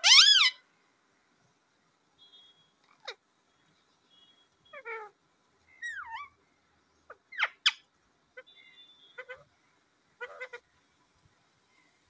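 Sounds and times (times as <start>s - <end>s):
parakeet chirps and squawks: 0.0s - 0.6s, 2.3s - 3.2s, 4.2s - 6.4s, 7.0s - 9.6s, 10.2s - 10.7s.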